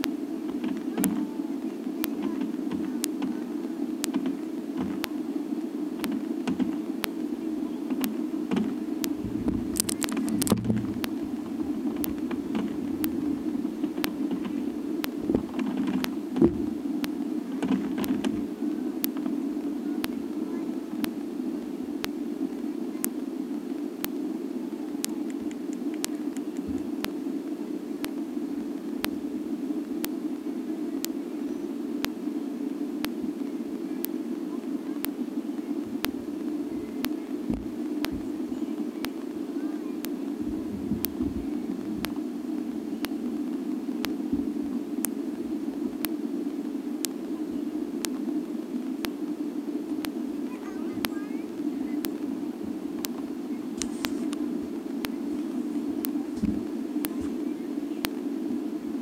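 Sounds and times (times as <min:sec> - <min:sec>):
fireworks crackling and thumps: 0:00.0 - 0:05.2, 0:05.9 - 0:19.4, 0:35.9 - 0:38.4, 0:52.0 - 0:57.4
fireworks cracks: 0:00.0 - 0:27.2, 0:52.0 - 0:57.4
distant fireworks rumble: 0:00.0 - 0:59.0
steady noise: 0:00.0 - 0:59.0
sharp ticks: 0:06.0 - 0:07.2, 0:07.9 - 0:19.3, 0:25.0 - 0:27.2.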